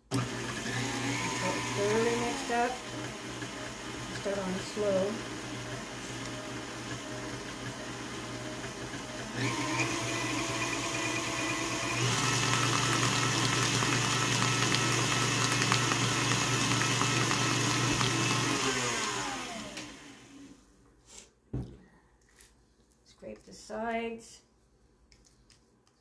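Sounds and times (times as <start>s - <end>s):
stand mixer running: 0.0s - 20.6s.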